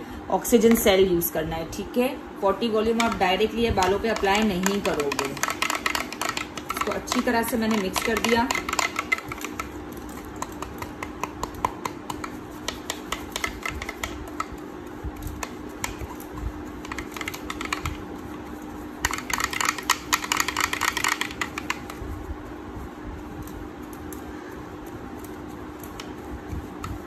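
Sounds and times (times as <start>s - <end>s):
brush tapping on plastic bowl: 2.6s - 22.0s.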